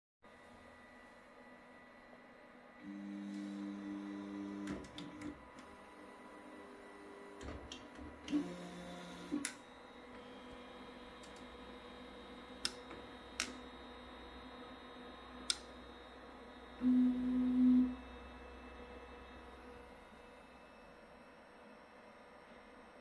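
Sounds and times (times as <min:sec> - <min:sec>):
stepper motors whining: 0:08.3 - 0:09.5.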